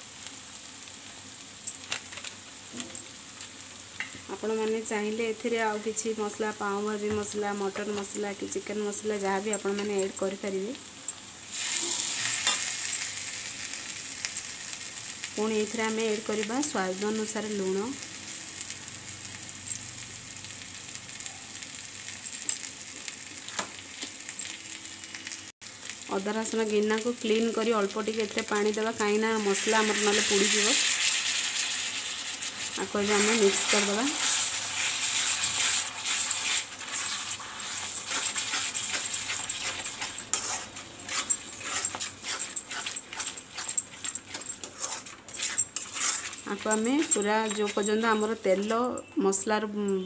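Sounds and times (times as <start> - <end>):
masala sizzling in oil: 0.0 - 49.7
spatula scraping pan: 32.5 - 48.9.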